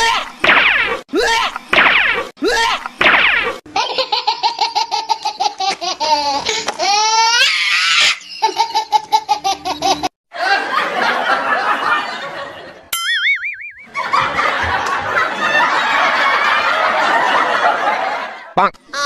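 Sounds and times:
high-pitched laughter: 0:03.7 - 0:10.8.

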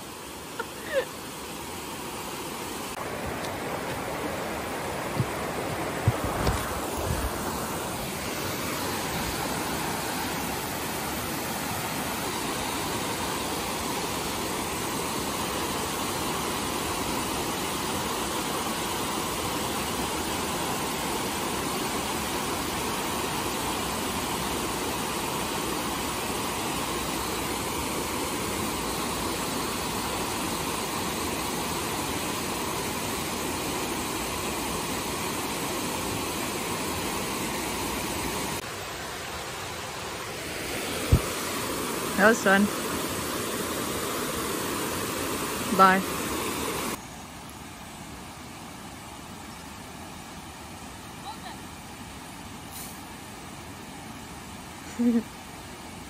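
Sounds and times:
water rushing over weir: 0:00.0 - 0:56.0.

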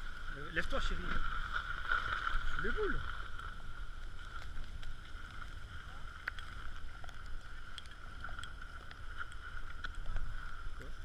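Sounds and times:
wind rumbling on microphone: 0:00.0 - 0:11.0
small ticks: 0:03.2 - 0:11.0.

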